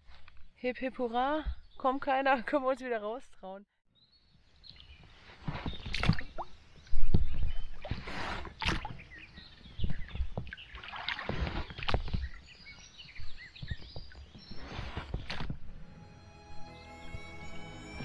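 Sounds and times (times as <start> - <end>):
birds chirping: 3.9 - 15.3
paddle splashing in water: 5.4 - 15.6
wind on microphone: 5.4 - 15.7.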